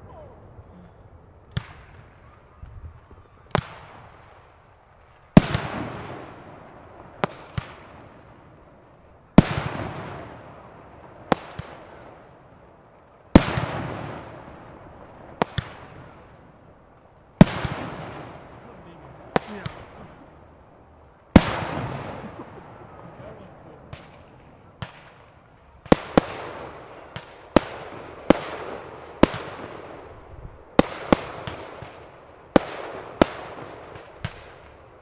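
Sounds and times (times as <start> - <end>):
fireworks bursting: 1.3 - 35.0
sharp firework reports: 17.4 - 20.6, 21.3 - 32.0.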